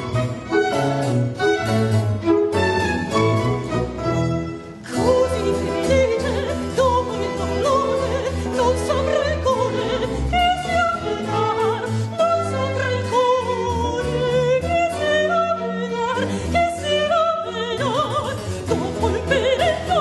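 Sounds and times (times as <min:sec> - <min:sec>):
string orchestra playing: 0:00.0 - 0:20.0
woman singing opera: 0:04.9 - 0:20.0.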